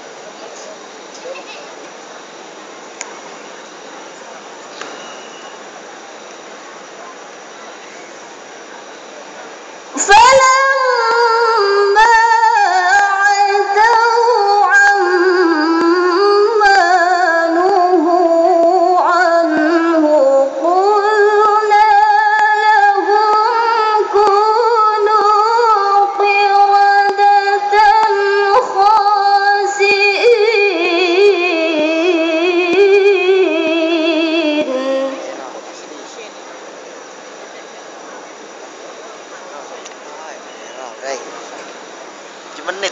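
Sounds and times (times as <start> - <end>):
woman chanting over loudspeakers: 10.0 - 35.4.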